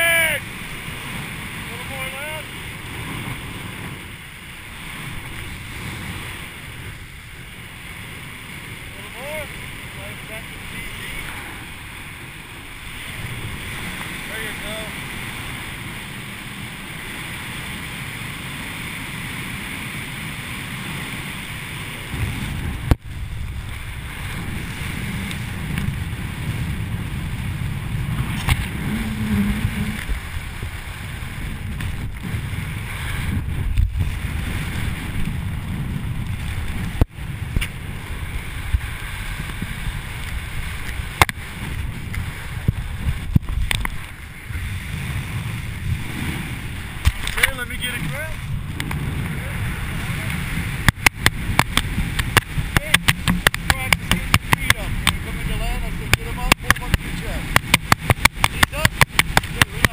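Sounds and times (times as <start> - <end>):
wind buffeting microphone: 0.0 - 59.9
sharp clicks: 57.5 - 59.9.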